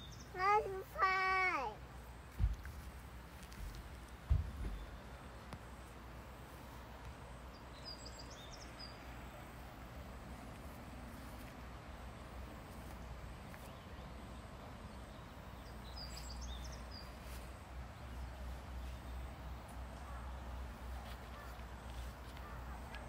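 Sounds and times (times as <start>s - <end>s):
small bird chirping: 0.0s - 0.6s, 7.5s - 9.1s, 13.0s - 19.4s
low outdoor rumble: 0.0s - 23.0s.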